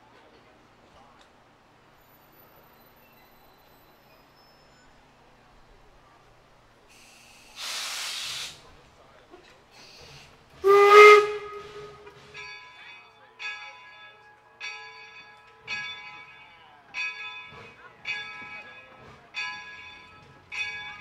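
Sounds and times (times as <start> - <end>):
locomotive bell ringing: 2.0 - 5.1, 10.7 - 21.0
steam hissing: 6.9 - 8.7
steam whistle blast: 10.6 - 12.2.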